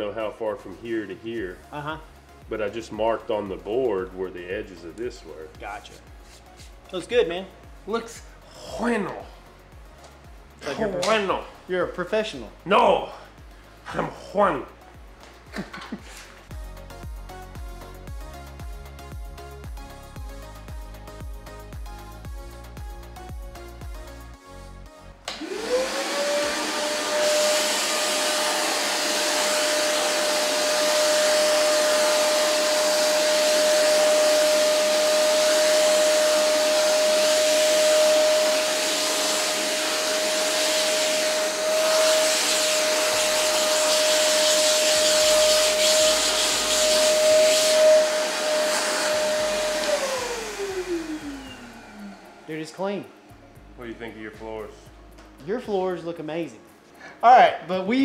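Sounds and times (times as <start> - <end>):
shop vacuum motor whine: 25.3 - 53.3
vacuum sucking sawdust: 25.3 - 53.4.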